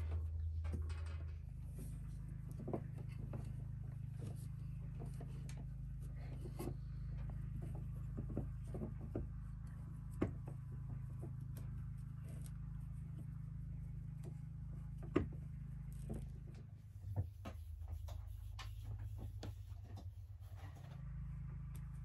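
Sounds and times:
steady low hum: 0.0s - 22.0s
hands tying yarn clicking: 15.9s - 20.5s.

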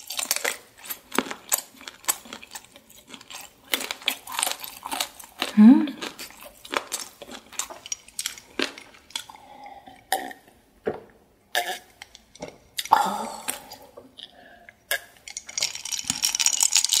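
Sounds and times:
chewing: 0.0s - 10.5s.

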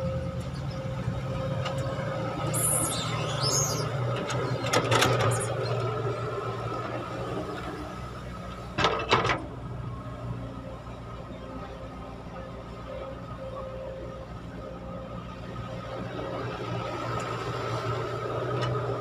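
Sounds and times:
excavator diesel engine running: 0.0s - 19.0s
high gliding squeaks: 2.4s - 5.9s.

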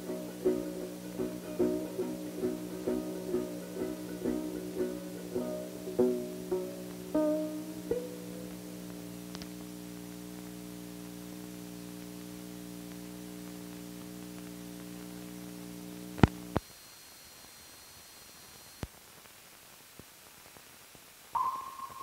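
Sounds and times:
electrical hum: 0.0s - 16.6s
film soundtrack hiss: 0.0s - 22.0s.

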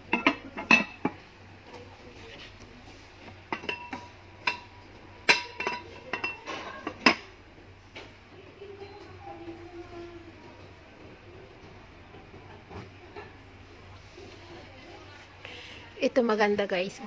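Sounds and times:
glass lids and pots clinking: 0.0s - 1.2s, 3.5s - 7.3s.

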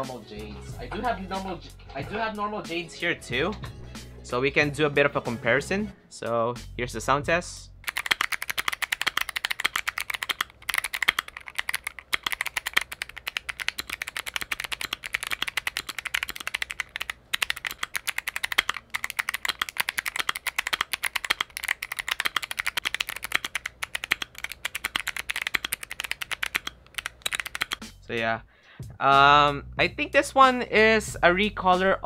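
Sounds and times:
mechanical keyboard typing: 7.8s - 27.8s.

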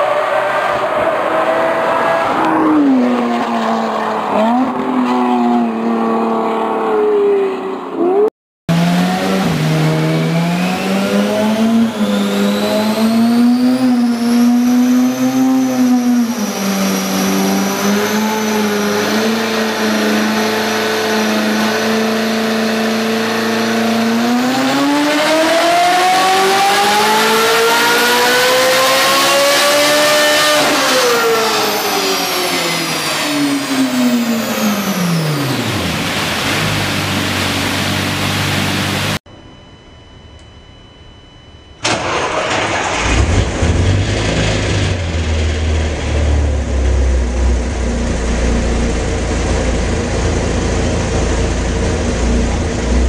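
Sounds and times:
car engine revving on dyno: 0.0s - 39.2s, 41.8s - 53.0s
supercar exhaust on road: 41.8s - 53.0s.

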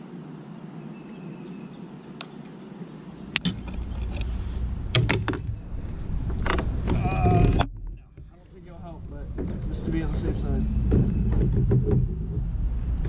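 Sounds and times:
wind rumbling on microphone: 3.2s - 13.0s
knocks and clatters on plastic kayak: 9.3s - 12.7s.

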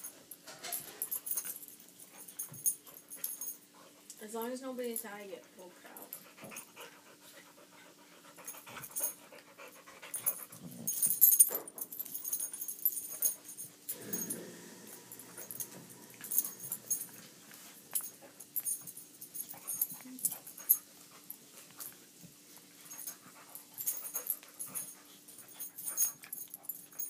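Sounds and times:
dogs panting: 5.4s - 14.4s, 15.0s - 27.0s.

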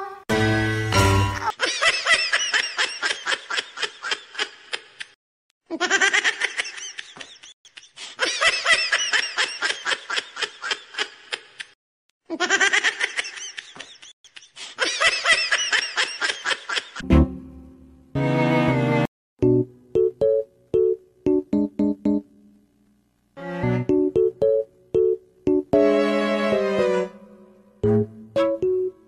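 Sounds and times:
person laughing: 1.4s - 17.0s.

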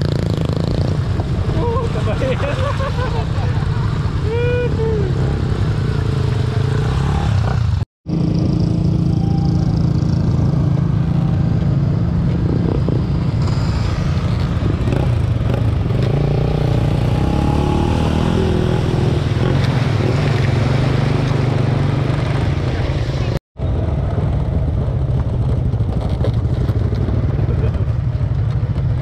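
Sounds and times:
motorcycle engine running: 23.6s - 29.0s.

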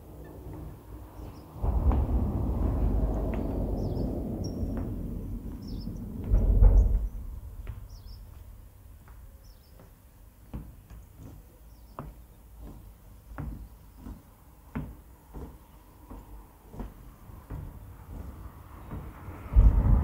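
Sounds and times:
low rumble: 0.0s - 9.7s, 16.7s - 20.0s
birds chirping: 0.0s - 20.0s
footsteps on wooden boards: 0.0s - 20.0s.

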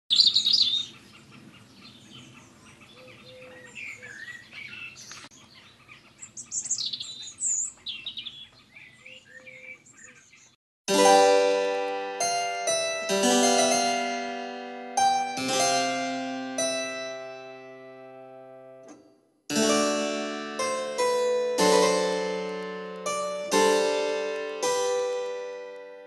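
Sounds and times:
keyboard playing slow chords: 10.9s - 26.0s.

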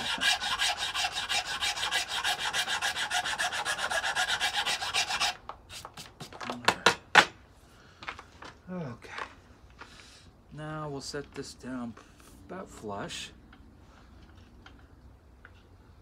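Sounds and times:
hand file rasping on wood: 0.0s - 5.4s.

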